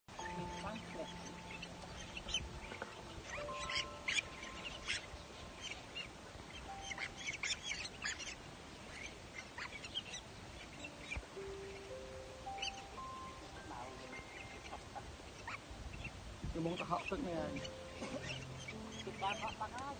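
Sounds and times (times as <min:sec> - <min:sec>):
bird chicks squeaky cries: 0:00.2 - 0:19.9.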